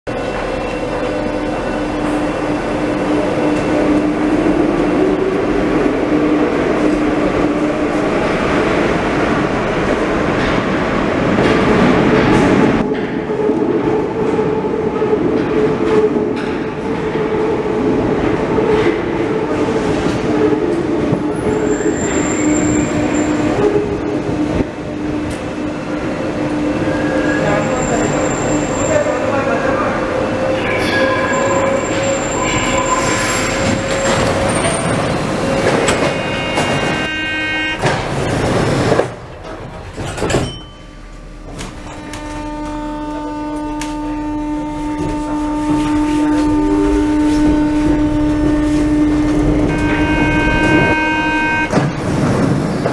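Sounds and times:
train wheels rumbling on rail: 0:00.1 - 0:52.9
humming motor tone: 0:41.8 - 0:51.7.

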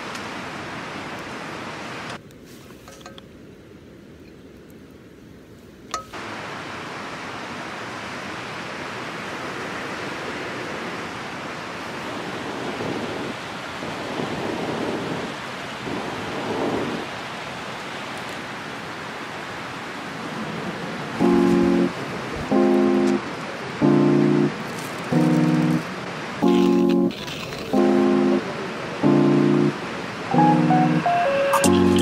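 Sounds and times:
river rushing over rocks: 0:00.0 - 0:02.2, 0:06.0 - 0:14.1, 0:24.5 - 0:32.0.

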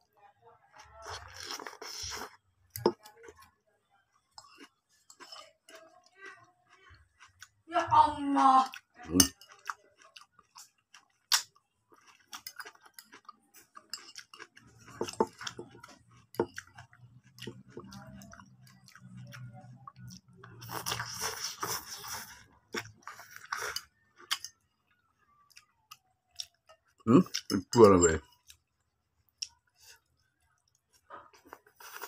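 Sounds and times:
man chewing: 0:01.0 - 0:03.5, 0:04.3 - 0:05.8, 0:09.1 - 0:27.6, 0:29.3 - 0:32.0.

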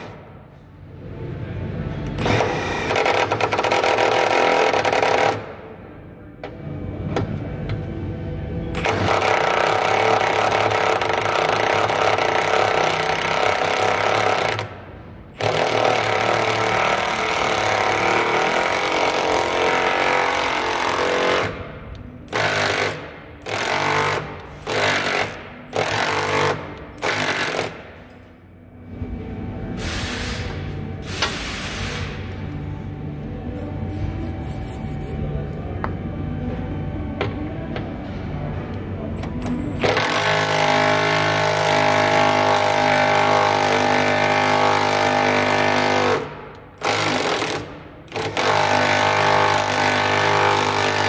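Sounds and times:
impact wrench hammering bolt: 0:22.3 - 0:28.2.

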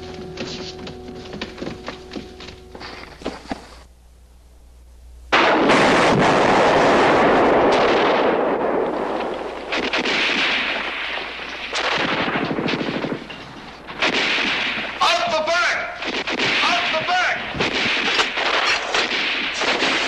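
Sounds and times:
loud rumbling explosion: 0:05.3 - 0:15.0
gunshots: 0:05.3 - 0:20.0
automatic gunfire burst: 0:09.7 - 0:13.3, 0:16.0 - 0:20.0.

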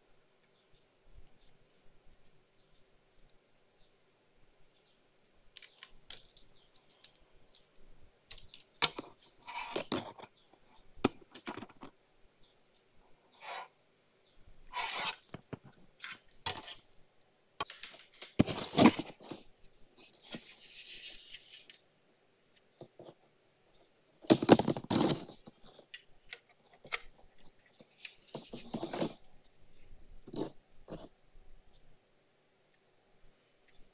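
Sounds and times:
plastic router rustling: 0:17.6 - 0:21.8, 0:24.2 - 0:29.3.

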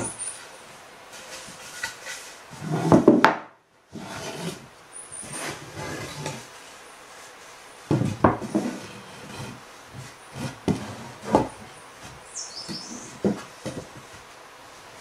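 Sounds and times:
wood scraping on wood: 0:00.0 - 0:03.3, 0:03.9 - 0:14.3
wooden boards knocking: 0:07.9 - 0:08.8.

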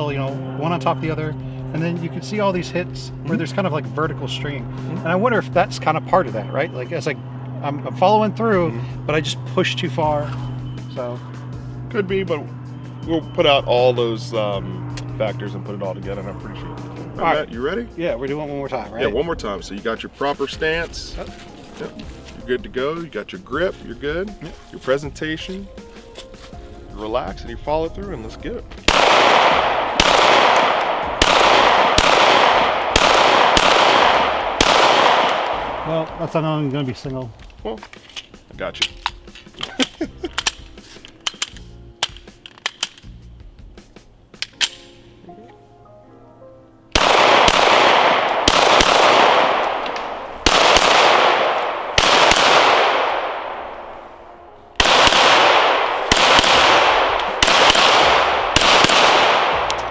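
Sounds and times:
pistol shots with echo: 0:28.8 - 0:36.4, 0:46.9 - 0:59.9.

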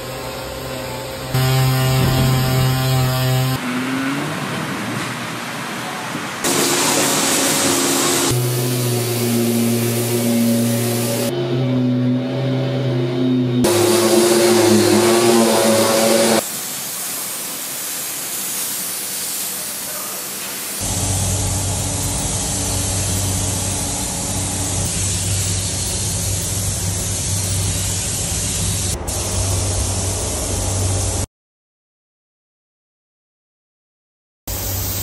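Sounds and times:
loud steady tones: 0:00.2 - 0:03.6, 0:06.4 - 0:16.6, 0:20.8 - 0:30.9
paint spray gun hissing: 0:06.5 - 0:11.3, 0:13.7 - 0:31.2, 0:34.5 - 0:35.0
steady low hum: 0:20.8 - 0:31.2.

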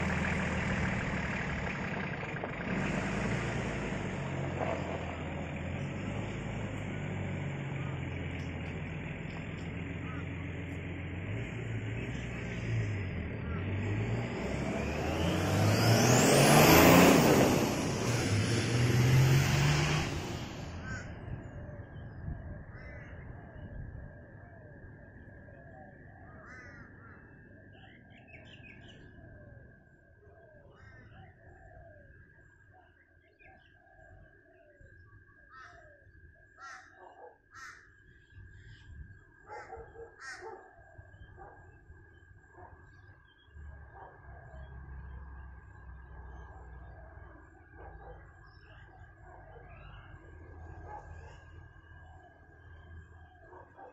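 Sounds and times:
diesel engine driving past: 0:00.0 - 0:29.8, 0:43.4 - 0:53.9
crows cawing: 0:20.8 - 0:21.2, 0:22.7 - 0:23.2, 0:26.3 - 0:27.3, 0:35.5 - 0:38.0, 0:40.2 - 0:40.6.

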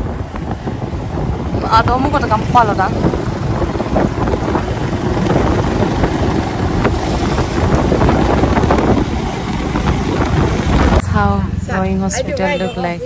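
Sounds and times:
motorcycle running: 0:00.0 - 0:13.0
wind buffeting microphone: 0:00.0 - 0:13.0.

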